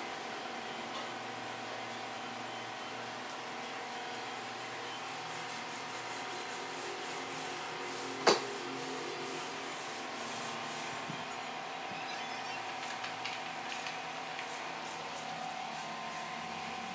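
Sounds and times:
steady background hum: 0.0 - 16.9
paint roller on textured wall: 5.0 - 11.1.

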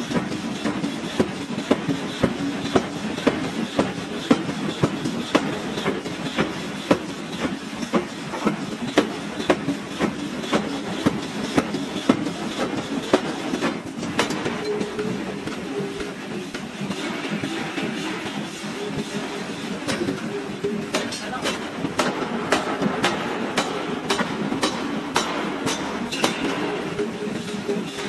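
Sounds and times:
shop machinery noise: 0.0 - 28.0
forging hammer striking metal: 20.9 - 27.1.

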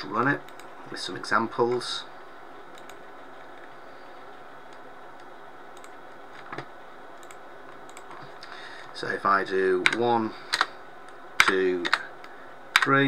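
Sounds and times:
steady low hiss: 0.0 - 13.0
computer mouse clicks: 2.7 - 3.0, 4.7 - 6.0, 6.6 - 8.2.

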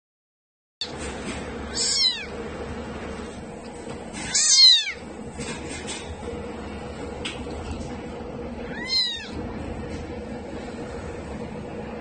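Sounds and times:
kitten mewing: 1.7 - 2.4, 4.2 - 5.1, 8.6 - 9.4.

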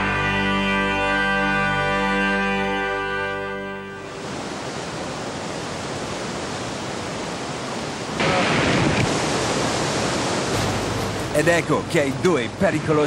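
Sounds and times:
music: 0.0 - 4.0
river rapids rushing: 3.9 - 13.0.

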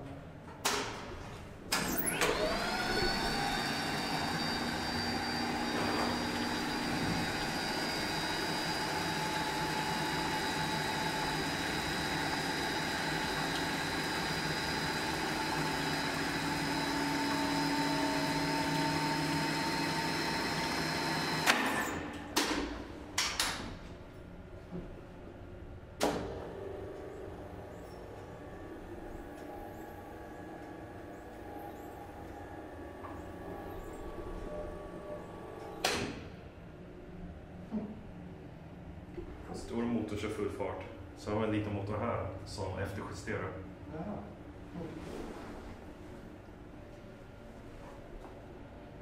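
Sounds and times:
elevator motor whining: 1.7 - 22.2, 26.1 - 37.1.

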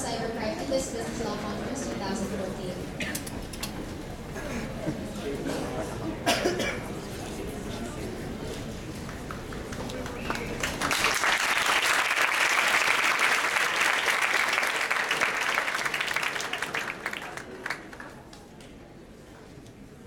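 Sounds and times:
audience applauding: 9.0 - 18.5.

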